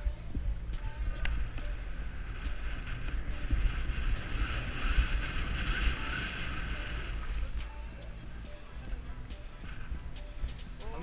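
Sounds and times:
bike tyres rumbling on cobblestones: 0.0s - 7.9s
wind buffeting microphone: 0.0s - 11.0s.

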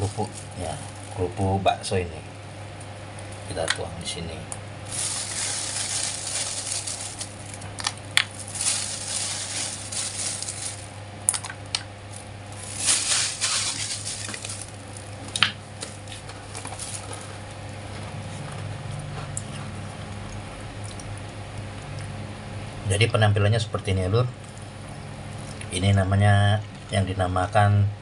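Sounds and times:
plastic bag crinkling: 0.0s - 1.4s, 4.8s - 17.5s.

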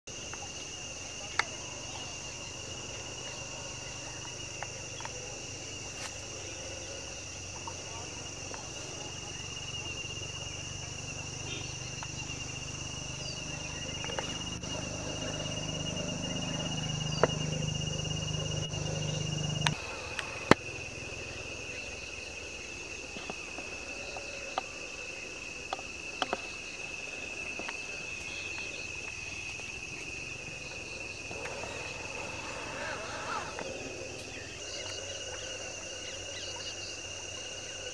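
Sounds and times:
insect shrilling: 31.2s - 34.8s.

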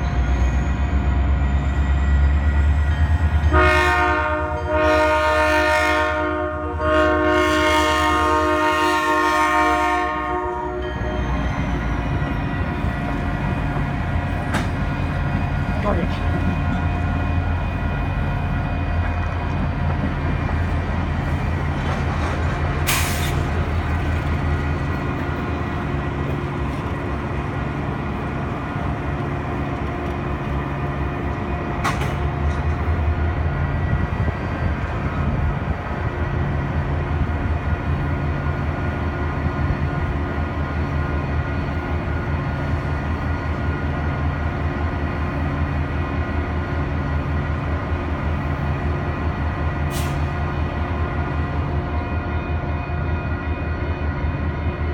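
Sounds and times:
diesel locomotive running: 0.0s - 54.9s
short hiss of air: 22.9s - 23.5s, 49.9s - 50.3s.

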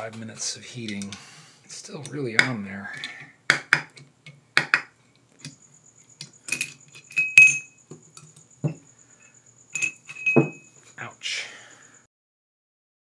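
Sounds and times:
dull metal knocks: 7.9s - 8.8s, 10.2s - 10.6s.

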